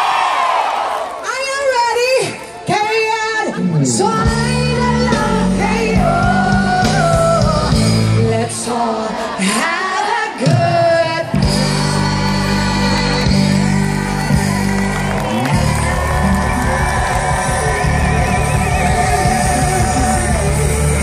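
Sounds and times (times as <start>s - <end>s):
woman singing: 1.8s - 14.7s
live band with bass: 3.7s - 8.5s, 11.3s - 21.0s.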